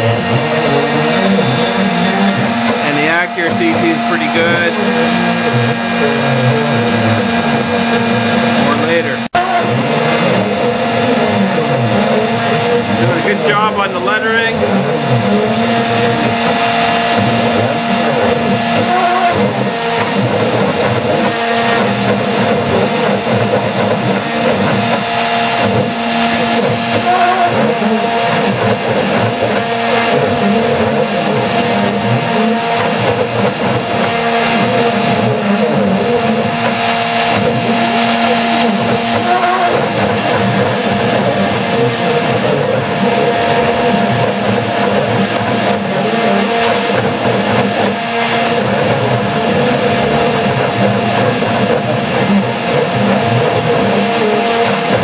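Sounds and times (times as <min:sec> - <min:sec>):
bit cutting wood: 0:00.0 - 0:55.0
router motor whine: 0:00.0 - 0:55.0.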